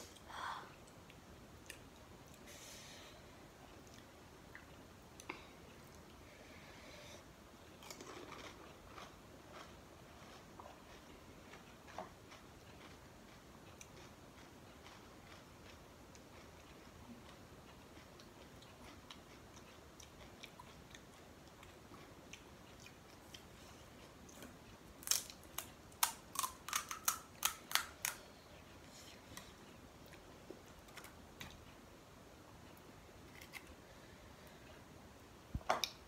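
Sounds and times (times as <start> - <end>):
crisp fried shell crunching: 25.0 - 28.2.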